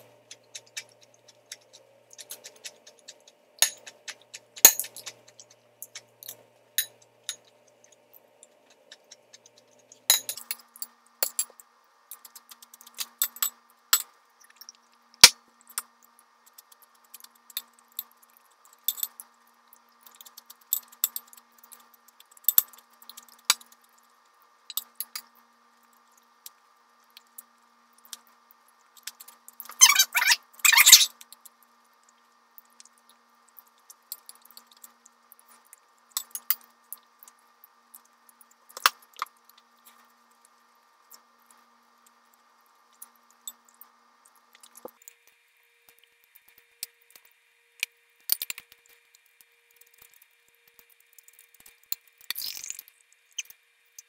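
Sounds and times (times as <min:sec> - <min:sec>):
faint steady background hum: 0:00.0 - 0:54.0
spoon and chopsticks clinking on glass: 0:10.1 - 0:11.6.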